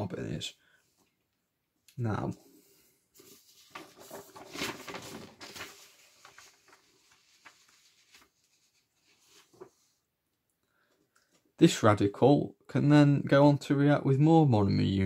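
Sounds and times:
paper rustling: 3.2s - 10.0s.

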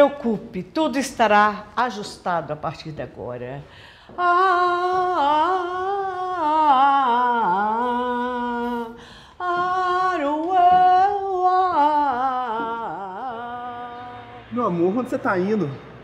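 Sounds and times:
woman singing with vibrato: 3.7s - 14.6s.

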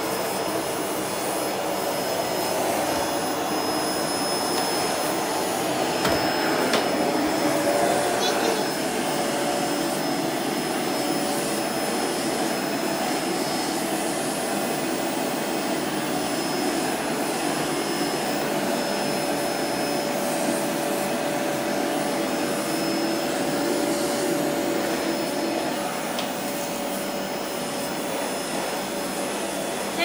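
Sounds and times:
vacuum cleaner running: 0.0s - 30.0s.

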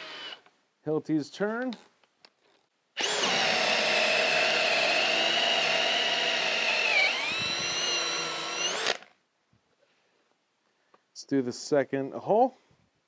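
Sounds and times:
drill motor whine: 0.0s - 0.4s, 3.0s - 9.0s.

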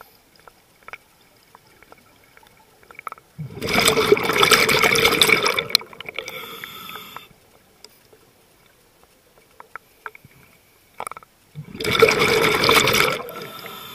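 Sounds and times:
faint clicks: 0.0s - 3.4s, 5.2s - 11.4s
rush of exhaled bubbles underwater: 3.4s - 6.2s, 11.6s - 13.9s.

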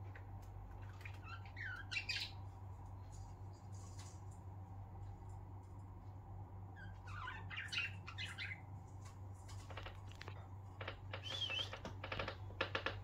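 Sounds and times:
budgerigars chirping and trilling: 0.8s - 2.4s, 6.8s - 8.7s, 11.2s - 11.9s.

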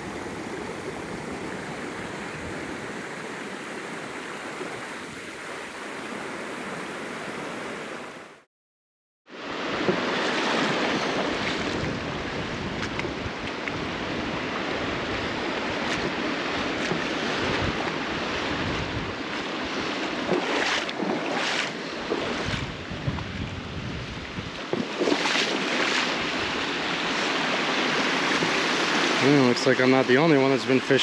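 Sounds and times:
river water rushing over rocks: 0.0s - 8.3s, 13.2s - 22.6s, 24.6s - 31.0s
wind buffeting microphone: 10.6s - 25.4s.

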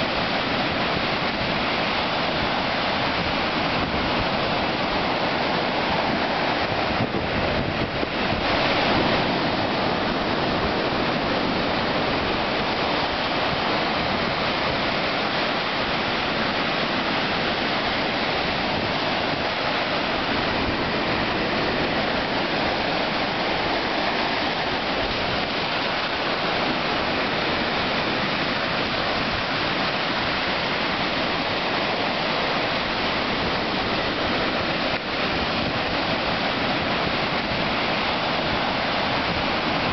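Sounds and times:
ocean surf breaking on beach: 0.0s - 39.9s.

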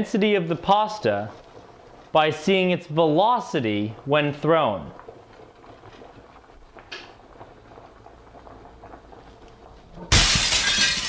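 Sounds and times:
glass shattering: 10.1s - 11.0s.

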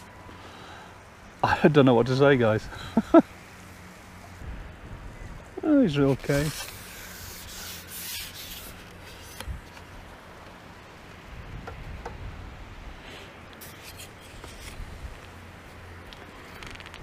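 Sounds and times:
steady low hum: 0.0s - 17.0s
faint rubbing and rustling: 5.8s - 9.9s, 13.6s - 17.0s.

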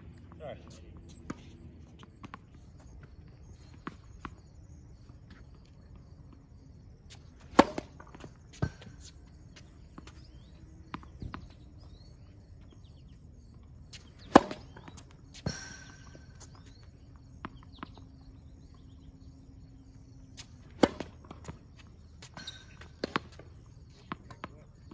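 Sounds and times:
tennis racket hitting ball: 7.4s - 8.0s, 14.0s - 16.3s, 20.4s - 21.4s
ball bouncing on hard court: 14.0s - 18.0s, 20.7s - 21.6s.

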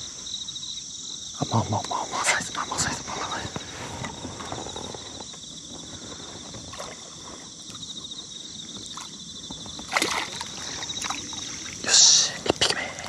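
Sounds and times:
fish splashing at surface: 9.9s - 11.8s.

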